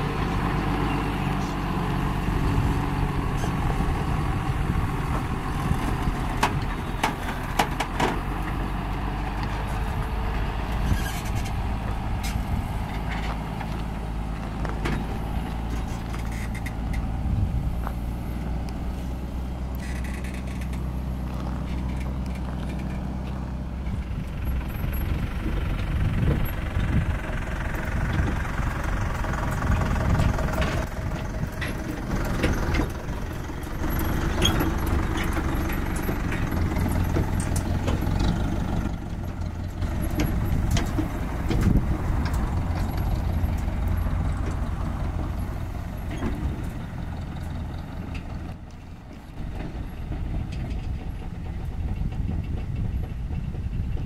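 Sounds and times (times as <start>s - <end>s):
tractor diesel engine running: 0.0s - 54.0s
metal clanks and knocks: 6.3s - 8.6s.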